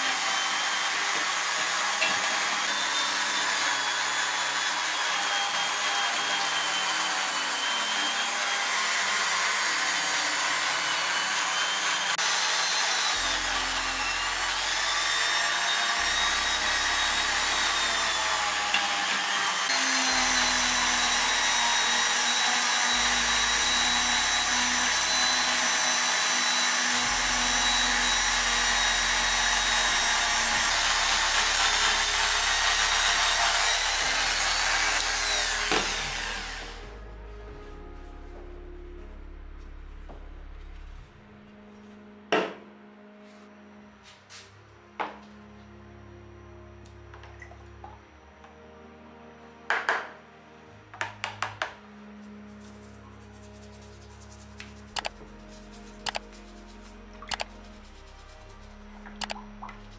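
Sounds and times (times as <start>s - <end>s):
rotary tool grinding metal: 0.0s - 36.9s.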